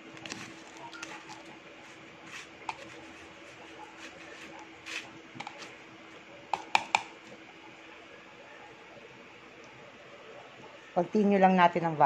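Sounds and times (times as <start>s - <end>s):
fork tapping plastic bowl: 6.5s - 7.1s.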